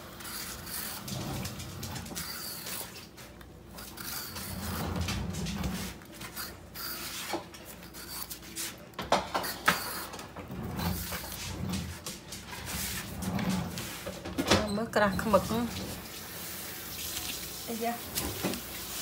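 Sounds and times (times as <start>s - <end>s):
knife scraping gourd skin: 6.0s - 10.1s.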